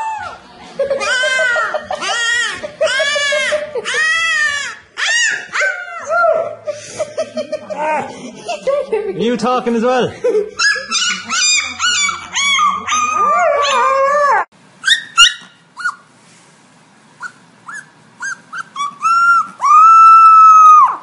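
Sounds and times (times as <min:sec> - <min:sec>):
puppy howling: 0:00.0 - 0:00.4, 0:01.0 - 0:06.7, 0:10.6 - 0:16.0, 0:17.7 - 0:21.0
puppy yipping: 0:01.0 - 0:06.6, 0:10.6 - 0:16.1, 0:17.2 - 0:21.0.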